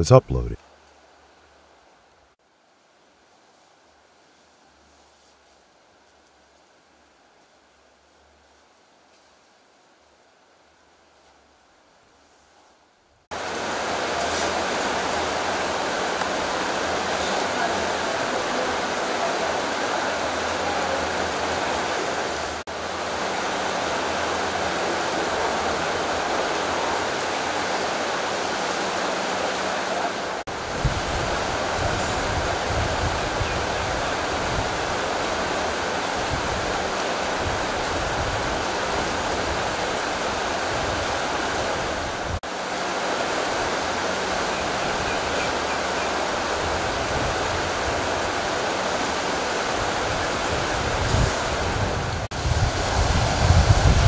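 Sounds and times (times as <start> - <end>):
stream running over stones: 13.3 - 54.0.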